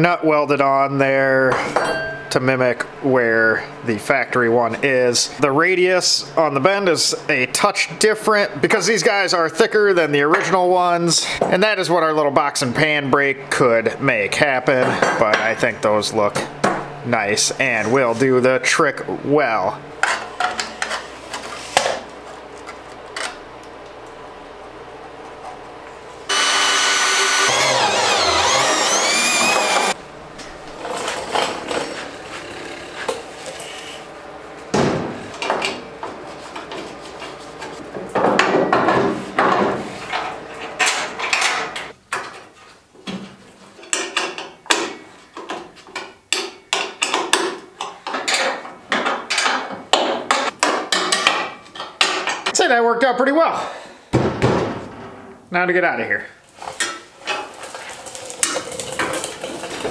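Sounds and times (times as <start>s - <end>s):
power tool running: 26.2s - 30.0s.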